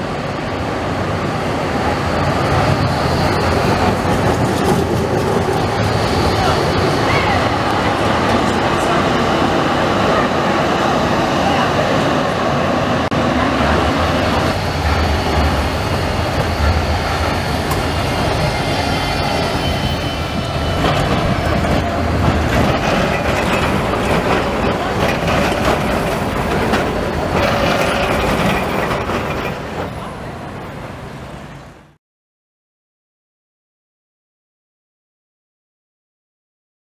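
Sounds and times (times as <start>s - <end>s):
trams rumbling over rails: 0.0s - 32.0s
high wheel squeal: 14.1s - 30.7s.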